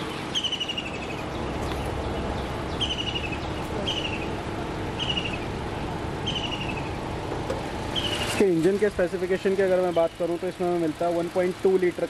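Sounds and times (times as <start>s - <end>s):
bird calling falling trill: 0.0s - 1.3s, 5.0s - 5.5s, 6.2s - 7.0s, 7.9s - 8.4s
low vehicle rumble: 0.0s - 12.0s.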